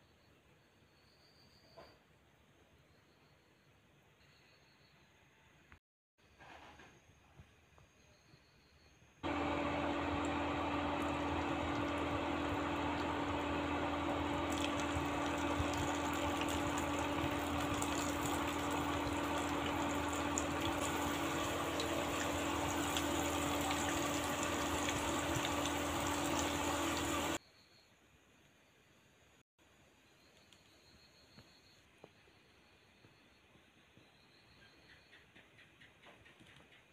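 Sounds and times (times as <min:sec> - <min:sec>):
food sizzling in hot oil: 0:09.4 - 0:27.4.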